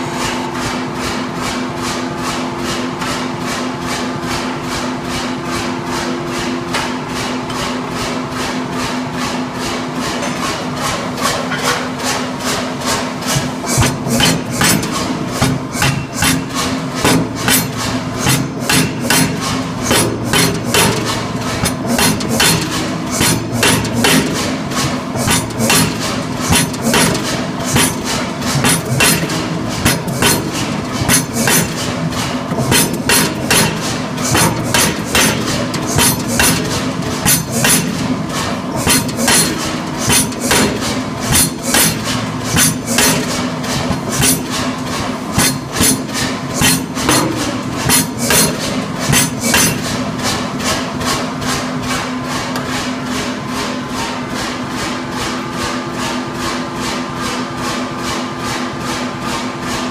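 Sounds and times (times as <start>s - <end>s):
machine hum: 0.0s - 57.2s
power hammer striking hot steel: 12.5s - 51.4s.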